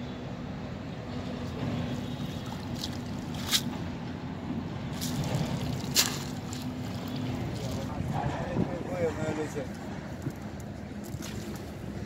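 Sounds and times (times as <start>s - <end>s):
water trickling off a net: 1.9s - 3.7s, 4.9s - 7.9s, 10.2s - 12.0s.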